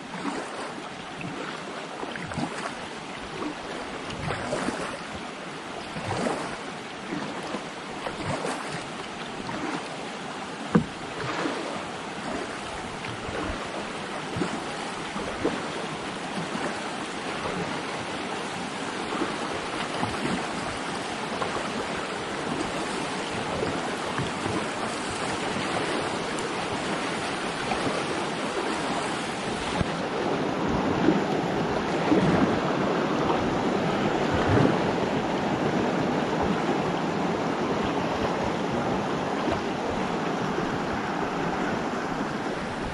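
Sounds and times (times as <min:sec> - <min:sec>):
paddle strokes splashing: 0:00.0 - 0:42.9
whitewater river rushing: 0:00.0 - 0:42.9.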